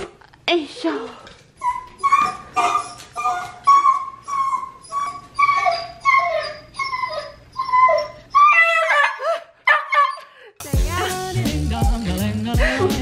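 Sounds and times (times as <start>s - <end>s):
dog whining and whimpering: 1.6s - 10.3s.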